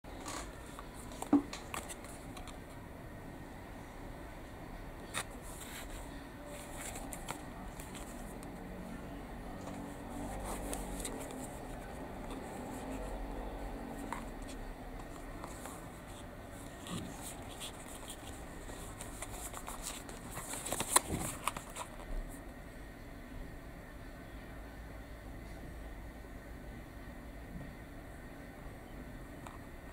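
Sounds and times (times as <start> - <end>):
fingers rustling cardboard: 5.2 - 8.5, 9.6 - 13.2, 13.9 - 22.0.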